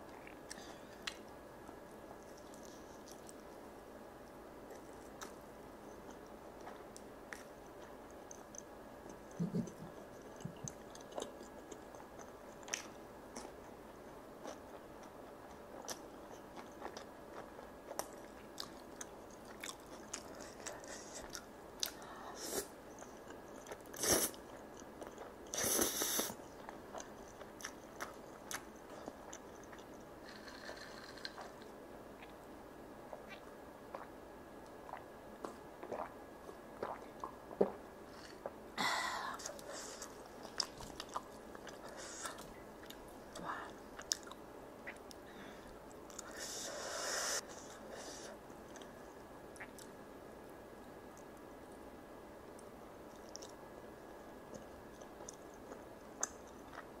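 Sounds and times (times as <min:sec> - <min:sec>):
wet chewing mouth clicks: 0:34.9 - 0:36.1.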